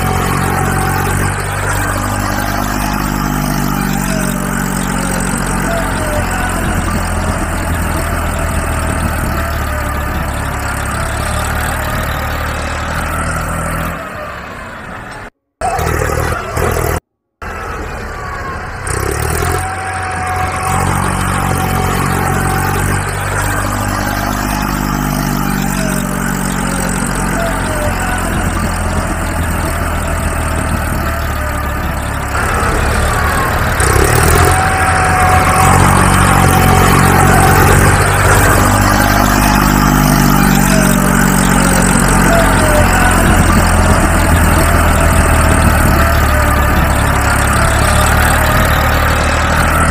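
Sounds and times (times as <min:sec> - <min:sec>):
engine running: 0:00.0 - 0:49.9.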